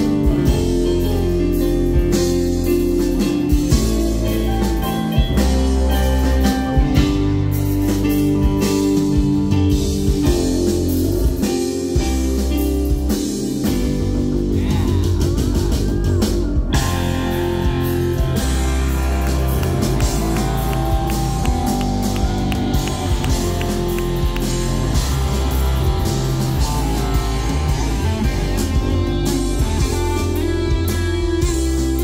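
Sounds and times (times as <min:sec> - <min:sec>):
live rock band music: 0:00.0 - 0:32.0.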